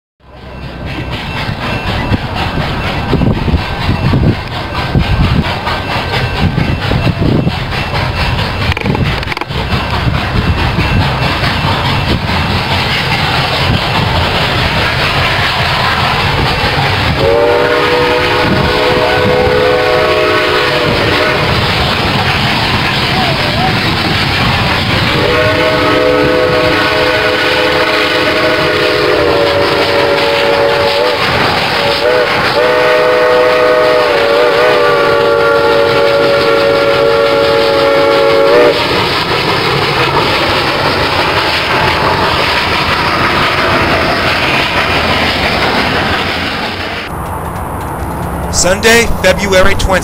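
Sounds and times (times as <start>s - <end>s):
train rumbling and clattering: 0.2s - 50.0s
steam locomotive whistle: 13.6s - 39.3s.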